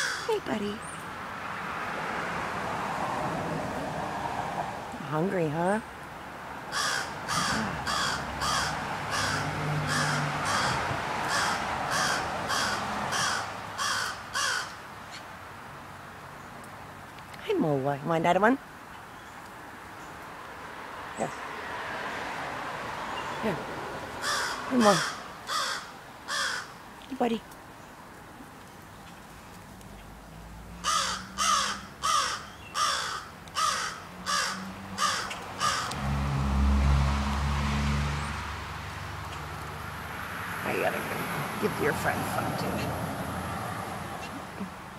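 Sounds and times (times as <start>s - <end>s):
crow cawing: 0.0s - 0.3s, 6.7s - 14.8s, 24.2s - 26.8s, 30.8s - 36.0s.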